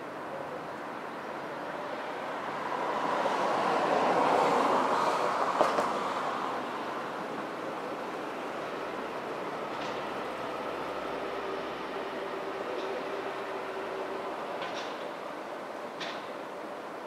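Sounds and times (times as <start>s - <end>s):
train wheels rushing on rails: 7.6s - 16.8s.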